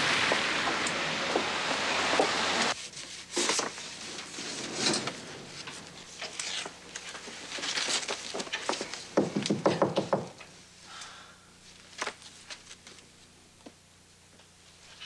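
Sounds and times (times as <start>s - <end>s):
steady rain hiss: 0.0s - 15.0s
paper folders rustling: 1.4s - 9.2s, 11.7s - 13.2s.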